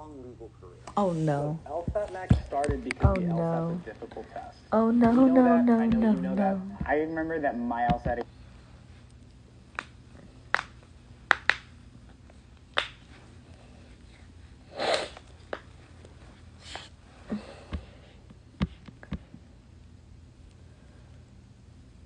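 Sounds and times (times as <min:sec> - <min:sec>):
hands tapping near microphone: 0:01.8 - 0:03.4, 0:09.8 - 0:11.7
breath or sniff: 0:14.7 - 0:15.2.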